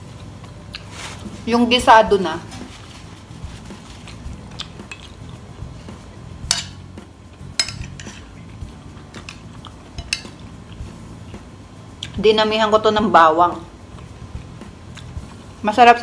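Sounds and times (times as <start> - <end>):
cutlery clinking on plate: 6.5 - 6.8, 7.6 - 8.4, 10.0 - 10.4.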